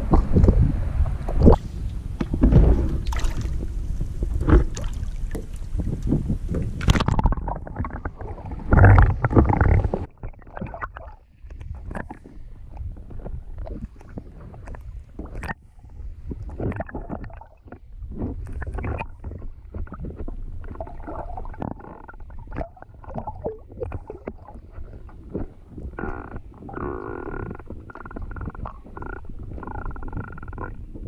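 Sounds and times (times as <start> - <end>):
water sloshing and knocks: 0.0 - 15.6
muffled underwater rumble: 0.0 - 31.0.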